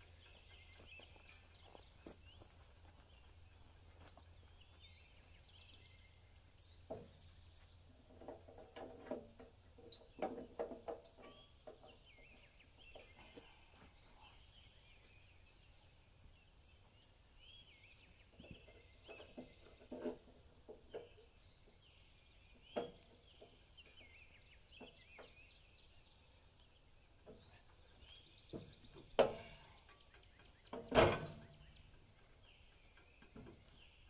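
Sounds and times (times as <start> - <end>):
birds chirping faintly: 0.0 - 34.0
knocks and clanks on log bed: 6.8 - 7.3, 8.0 - 13.5, 28.5 - 32.3, 32.9 - 34.0.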